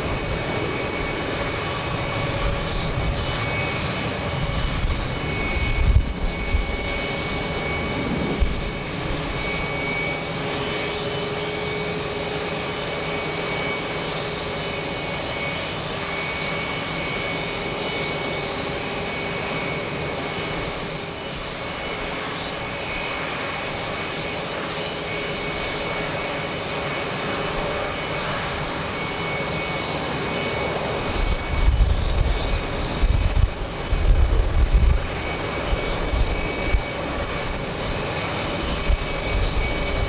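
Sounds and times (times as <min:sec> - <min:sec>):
wind buffeting microphone: 0:00.0 - 0:11.0, 0:25.6 - 0:40.0
jet engines roaring: 0:00.0 - 0:40.0.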